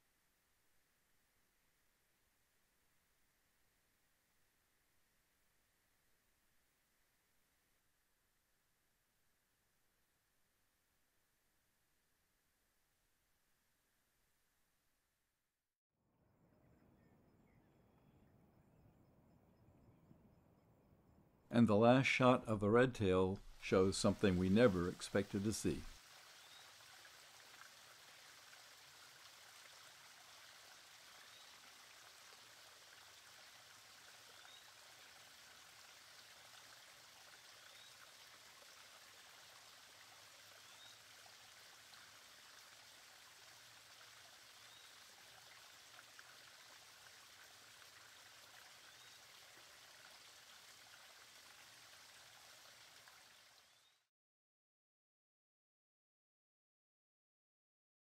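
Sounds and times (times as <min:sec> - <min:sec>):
small waterfall trickling: 0:23.4 - 0:54.1.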